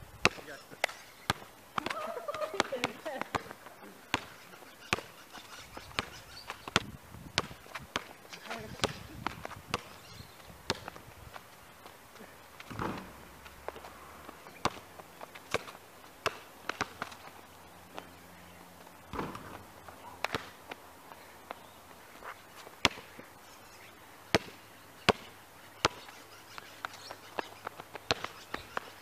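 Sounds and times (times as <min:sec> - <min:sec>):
basketball bouncing on asphalt: 0:00.1 - 0:23.4, 0:24.1 - 0:29.0
footsteps and shoe scuffs: 0:18.8 - 0:22.8.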